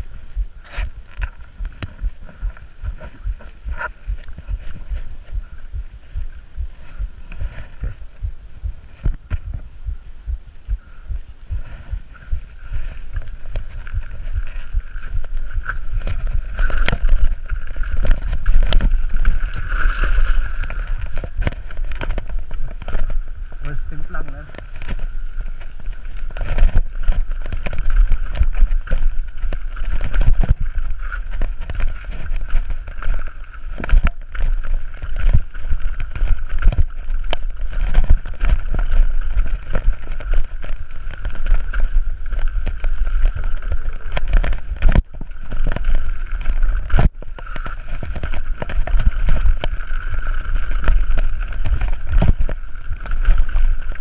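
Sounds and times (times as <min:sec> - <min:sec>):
bike knocking and rattling: 0:00.0 - 0:54.0
wind buffeting microphone: 0:00.0 - 0:54.0
tyres rumbling over dirt: 0:11.5 - 0:54.0.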